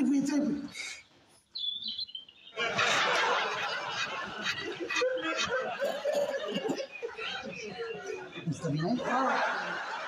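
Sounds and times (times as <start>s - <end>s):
audience laughter: 2.6s - 10.0s.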